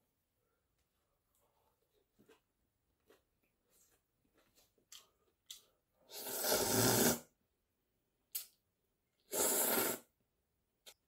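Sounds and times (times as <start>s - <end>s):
noodles slurped: 6.1s - 7.2s, 9.2s - 10.1s.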